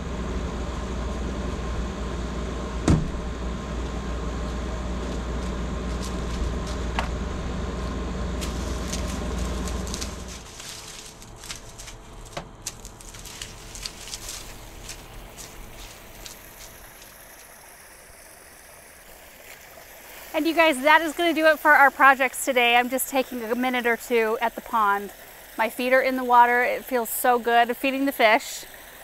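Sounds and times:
low mechanical hum: 0.0 - 29.0
rustling of onions: 7.7 - 17.2
hand pruners snipping: 8.4 - 16.7.

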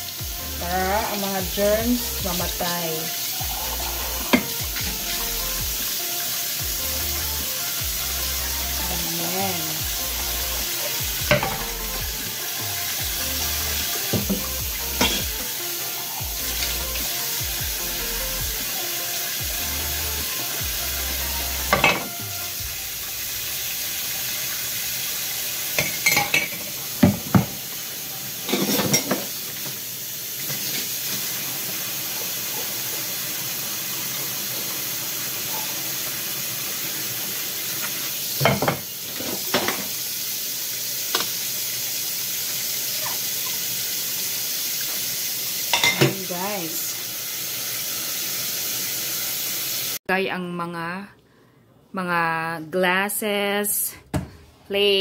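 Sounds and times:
tap water running into sink: 1.0 - 46.3
dishes and cutlery clinking: 11.3 - 11.7, 15.0 - 15.4, 21.7 - 22.2, 25.8 - 27.6, 28.4 - 29.4, 45.7 - 46.2.

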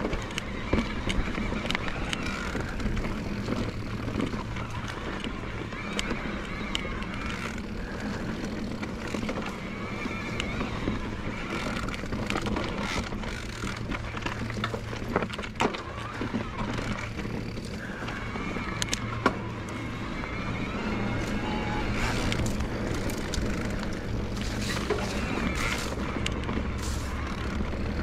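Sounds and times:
bike clicks and knocks: 0.0 - 20.0, 20.9 - 28.0
electric bike motor whining: 0.0 - 28.0.

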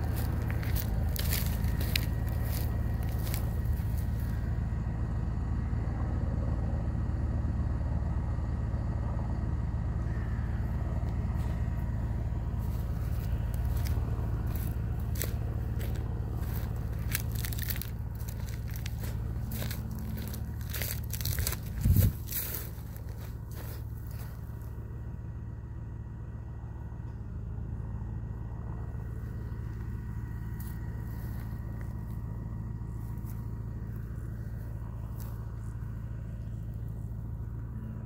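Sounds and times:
footsteps on dry stubble: 0.0 - 4.7, 10.6 - 24.8, 29.0 - 37.8
tractor engine running: 0.0 - 38.0.

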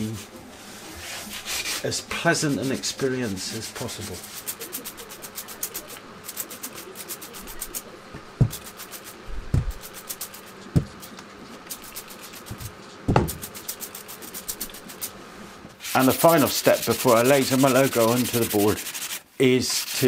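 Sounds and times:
spray bottle squirting water: 4.4 - 7.9, 8.5 - 15.1
dull thumps of wooden board: 8.1 - 8.6, 9.3 - 9.8, 10.7 - 11.0, 12.5 - 13.4.

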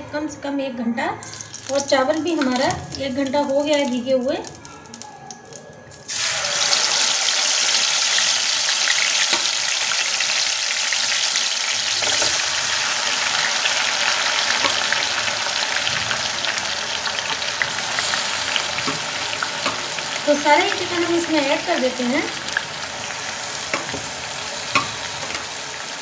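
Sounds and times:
chicken sizzling in hot oil: 6.0 - 26.0.

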